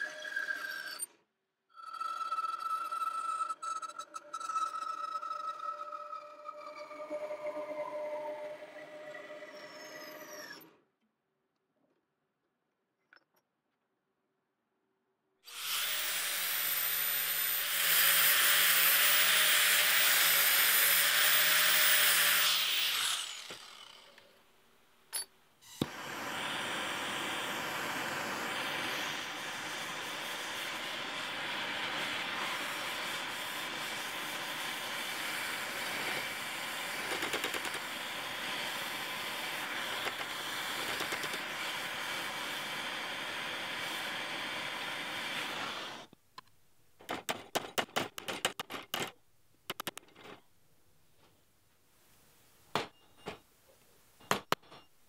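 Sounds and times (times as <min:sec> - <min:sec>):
bandsaw cutting steel: 0:02.0 - 0:10.7, 0:15.5 - 0:24.3, 0:25.7 - 0:46.1
gas torch hissing: 0:25.8 - 0:37.1, 0:37.8 - 0:46.1
click: 0:46.4 - 0:46.6.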